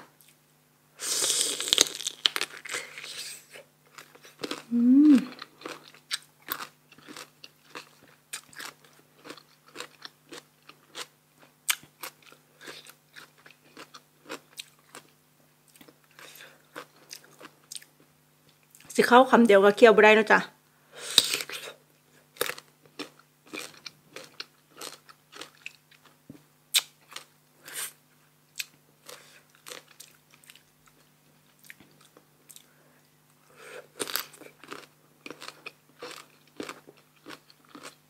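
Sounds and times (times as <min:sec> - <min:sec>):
loud crunch of biting fruit: 0:01.0 - 0:11.1, 0:22.4 - 0:28.0, 0:33.8 - 0:38.0
person humming mm: 0:04.7 - 0:05.4
wet chewing crunches: 0:34.0 - 0:38.0.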